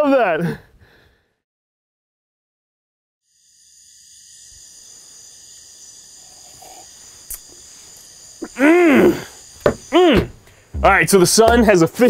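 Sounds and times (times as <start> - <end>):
crickets chirping: 3.2 - 12.0
person making loud vocal sound: 8.4 - 9.3, 9.9 - 11.6.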